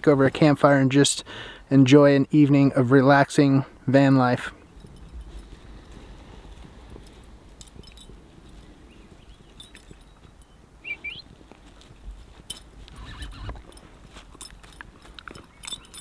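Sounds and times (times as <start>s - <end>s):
metal collar tags jingling: 4.4s - 11.0s, 12.3s - 16.0s.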